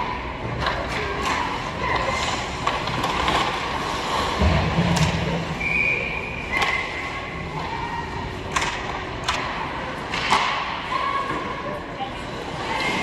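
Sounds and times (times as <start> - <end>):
hockey sticks cracking pucks: 0.6 - 4.2, 8.5 - 10.7.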